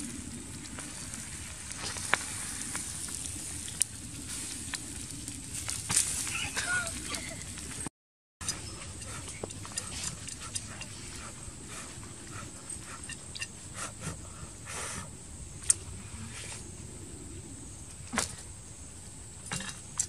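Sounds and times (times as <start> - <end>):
puffs of breath blowing: 13.7 - 15.1.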